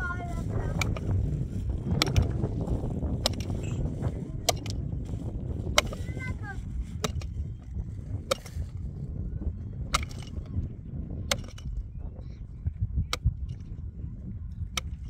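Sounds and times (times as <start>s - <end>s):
hand pick striking stony soil: 0.7s - 6.3s, 6.9s - 7.5s, 8.1s - 8.9s, 9.9s - 10.5s, 11.3s - 11.8s.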